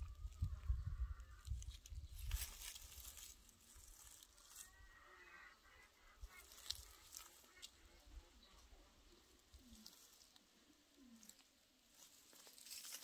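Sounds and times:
wind rumble on microphone: 0.0s - 2.9s
rustle of grass and dry leaves: 0.0s - 13.0s.

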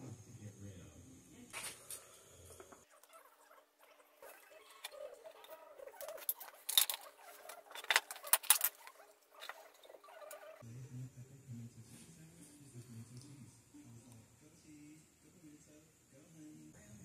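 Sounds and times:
small metal clicks: 6.0s - 9.6s.

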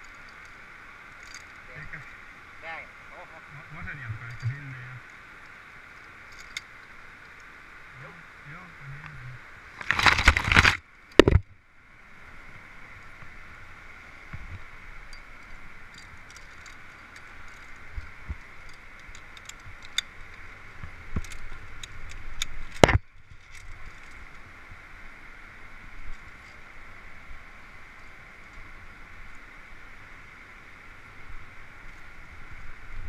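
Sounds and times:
leaves brushing camera: 9.7s - 10.8s
carabiner clicks and scrapes on cable: 15.1s - 20.4s, 21.1s - 24.3s.

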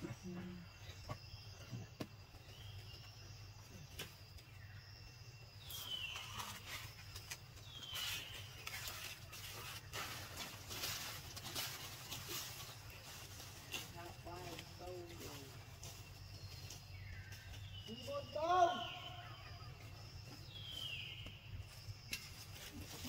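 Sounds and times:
faint rustling and crackling: 5.7s - 17.8s.

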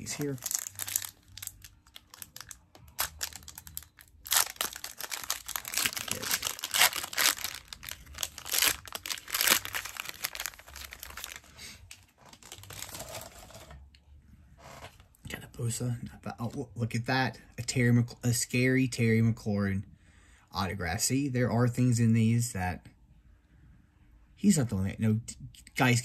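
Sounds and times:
foil wrapper tearing and crinkling: 0.0s - 11.6s, 12.2s - 13.7s.

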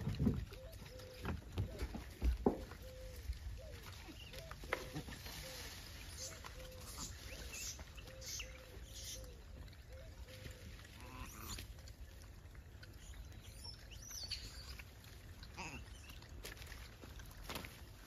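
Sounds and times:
rustling in grass: 5.0s - 7.9s.

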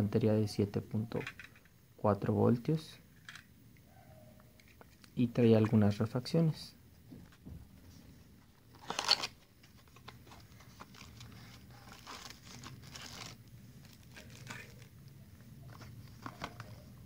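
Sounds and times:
plastic bag crinkling: 8.6s - 15.1s.

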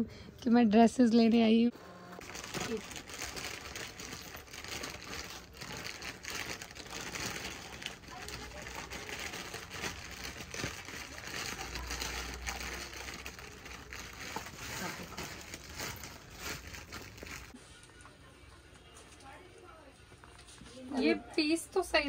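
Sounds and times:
clothing rustling: 8.6s - 17.6s.

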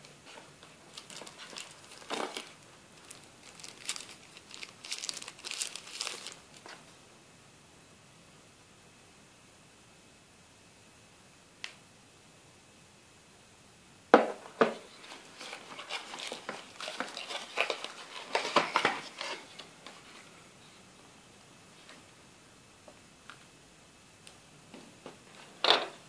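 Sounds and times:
faint click: 11.6s - 11.8s
tapping scraping and rustling cardboard: 14.2s - 20.0s.

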